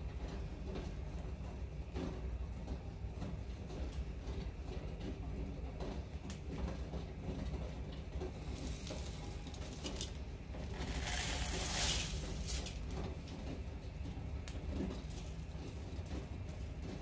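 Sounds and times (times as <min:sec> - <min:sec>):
steady low hum: 0:00.0 - 0:17.0
oats poured into bowl: 0:10.7 - 0:12.8.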